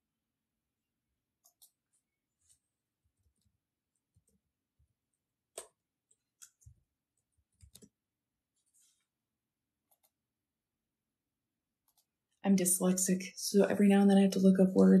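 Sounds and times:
typing taps and clicks: 7.5 - 8.0.

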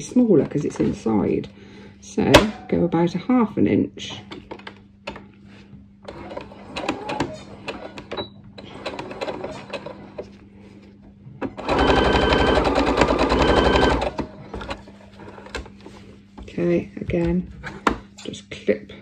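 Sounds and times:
sewing machine stitching: 6.1 - 10.2, 11.6 - 14.3.

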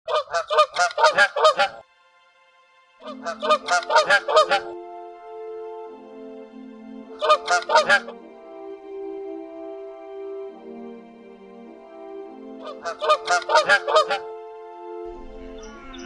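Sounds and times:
swan honking: 0.1 - 1.9, 3.0 - 5.2, 7.0 - 8.7, 11.6 - 16.0
soft music with held notes: 0.1 - 16.0.

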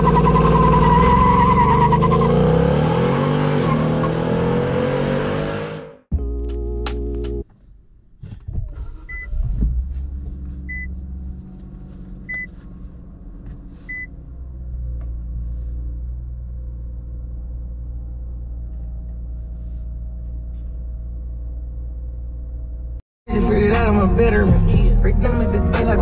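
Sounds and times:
car engine starting and idling: 6.1 - 26.0
car warning chime beeps: 10.7 - 10.9, 12.3 - 12.5, 13.9 - 14.1.

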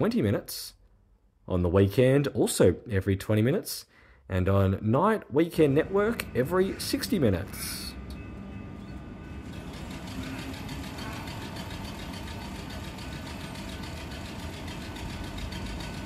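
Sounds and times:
faint steady tones: 5.5 - 16.0
electric train machinery humming: 5.6 - 16.0.

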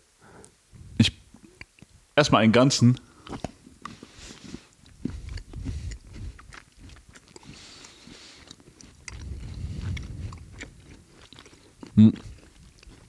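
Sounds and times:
person chewing crunchy biscuit: 3.0 - 13.0.

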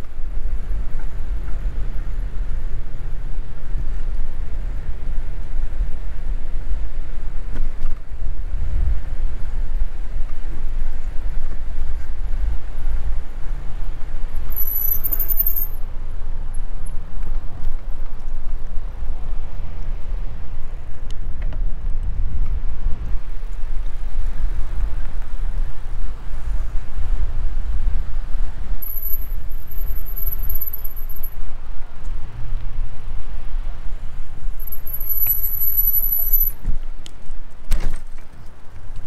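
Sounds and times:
wind buffeting microphone: 0.0 - 35.1
faint hiss of rolling tyres: 0.0 - 39.0
thin high tone: 14.5 - 15.8, 28.8 - 31.3, 34.6 - 36.6.

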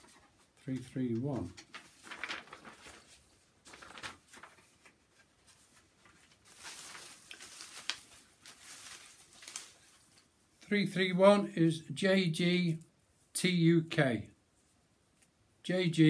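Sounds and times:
paper tickets rustling: 0.0 - 10.9.

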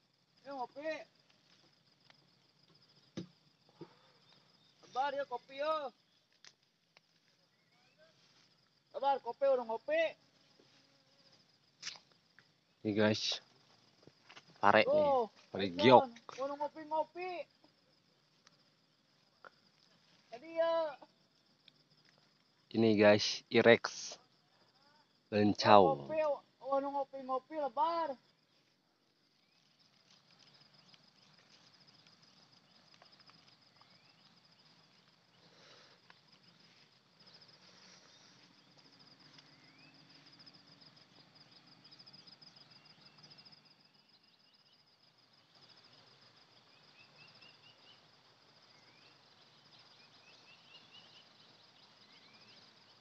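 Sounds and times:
insect trilling: 0.0 - 53.0
bird chirps: 29.4 - 45.8, 46.7 - 53.0.

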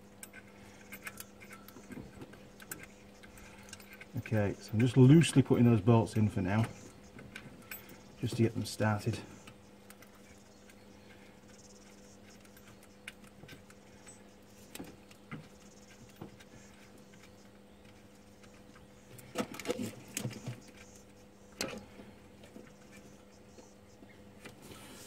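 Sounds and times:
faint steady hum: 0.0 - 25.0
metal clicks and rattles: 0.1 - 8.5.

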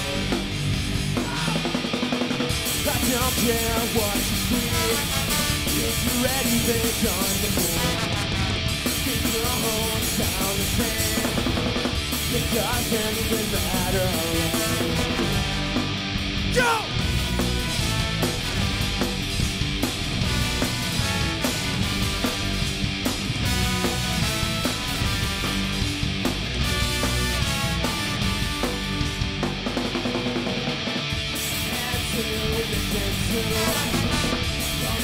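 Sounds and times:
punk rock band playing: 0.0 - 35.0
horn section: 3.2 - 9.0, 13.9 - 29.4, 33.4 - 35.0.

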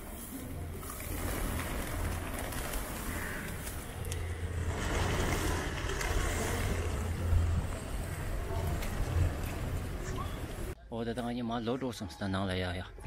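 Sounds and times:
pigeon wings fluttering: 0.0 - 10.7
wind rumbling on microphone: 0.6 - 10.8.

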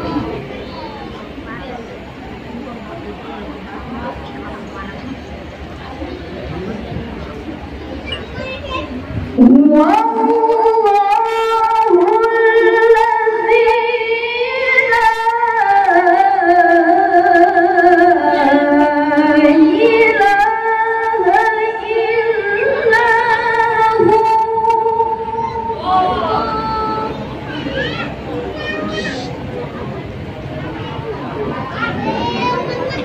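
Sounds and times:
woman reciting in melodic style: 9.4 - 27.4.

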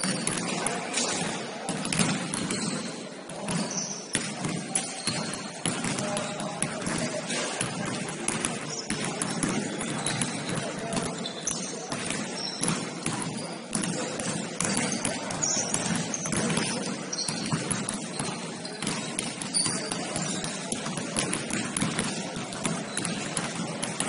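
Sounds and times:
basketball bouncing: 0.0 - 24.0.

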